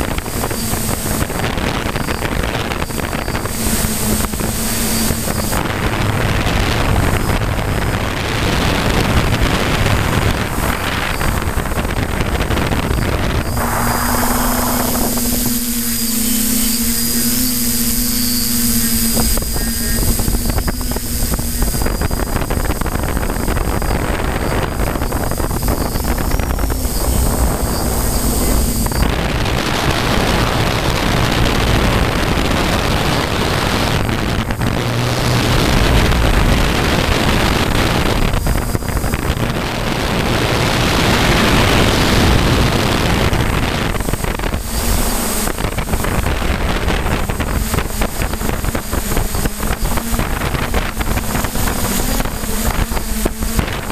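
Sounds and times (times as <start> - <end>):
drone propellers humming: 0.0 - 53.9
wind rushing over microphone: 0.0 - 53.9.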